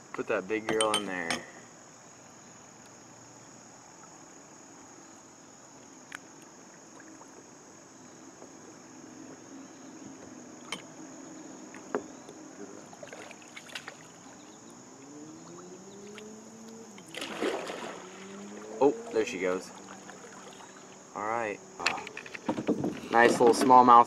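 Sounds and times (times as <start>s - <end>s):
high insect drone: 0.0s - 24.0s
paddle dipping into water: 11.6s - 21.1s
paddle knocking plastic hull: 21.9s - 23.9s.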